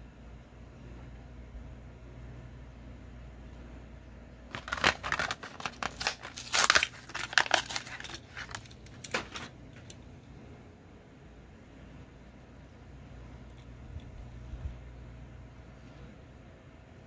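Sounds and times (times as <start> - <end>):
cardboard tearing: 4.5 - 9.4
plastic blister crinkling: 4.5 - 10.0.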